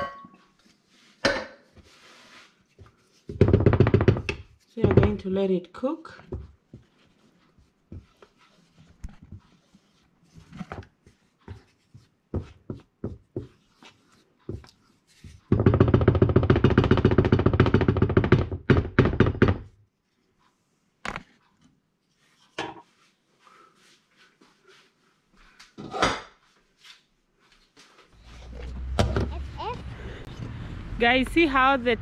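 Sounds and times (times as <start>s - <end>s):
spatula stirring thick sauce: 6.4s - 15.1s.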